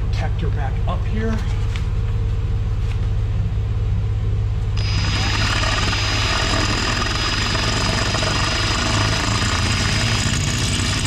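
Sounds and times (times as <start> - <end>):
cordless drill motor whine: 4.8 - 11.0
drill bit chattering through steel: 4.8 - 11.0.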